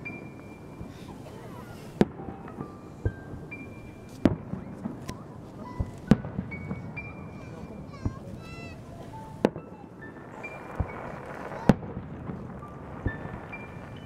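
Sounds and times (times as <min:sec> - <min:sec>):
fireworks bursting: 0:00.0 - 0:14.0
music with held notes: 0:00.1 - 0:04.9.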